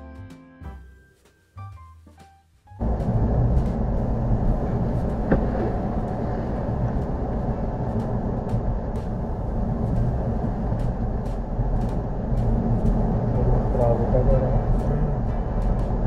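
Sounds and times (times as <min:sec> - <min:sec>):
low car cabin drone: 0:02.8 - 0:16.0
tyres on packed snow: 0:03.1 - 0:08.3.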